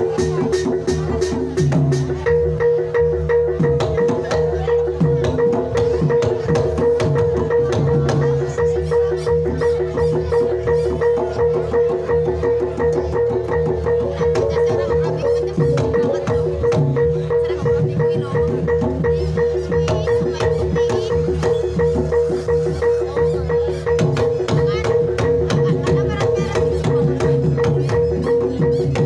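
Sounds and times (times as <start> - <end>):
wooden xylophone strokes: 15.4 - 29.0.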